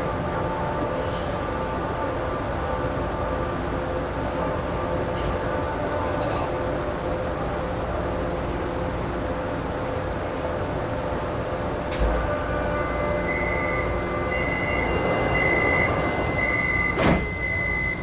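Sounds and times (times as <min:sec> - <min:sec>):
train car hum: 0:00.0 - 0:18.0
high warning beep: 0:13.0 - 0:18.0
sliding doors shutting: 0:13.3 - 0:18.0.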